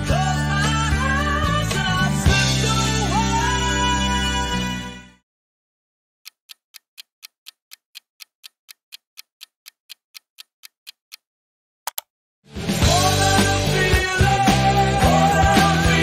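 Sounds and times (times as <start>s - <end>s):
clock ticking: 6.2s - 11.3s
quick clicks: 11.9s - 12.1s.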